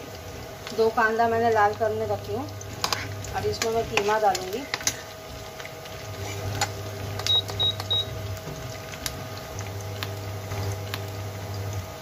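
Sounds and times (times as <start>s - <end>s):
cooktop low hum: 0.0s - 12.0s
onions frying in oil: 0.0s - 12.0s
short high beeps: 7.3s - 8.1s.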